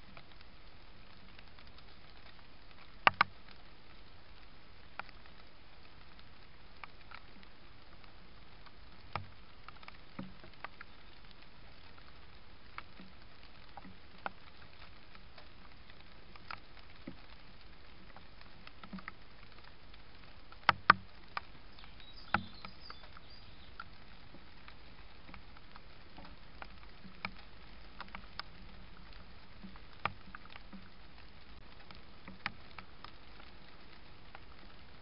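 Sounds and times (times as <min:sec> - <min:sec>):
light ticks and clicks: 0:00.0 - 0:35.0
microphone hiss: 0:00.0 - 0:35.0.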